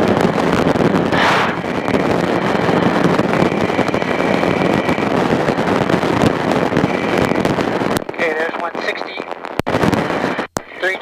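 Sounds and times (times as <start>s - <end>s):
aircraft engine and propeller: 0.0s - 8.8s
wind rushing over airframe: 0.0s - 11.0s.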